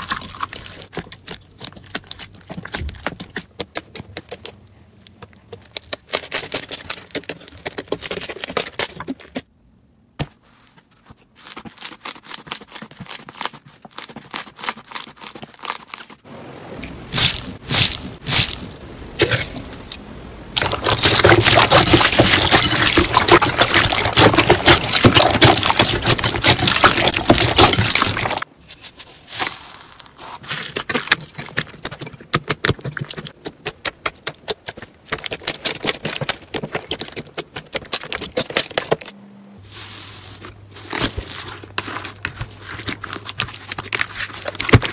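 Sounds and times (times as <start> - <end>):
loud crackling of beaded slime: 17.1 - 18.7.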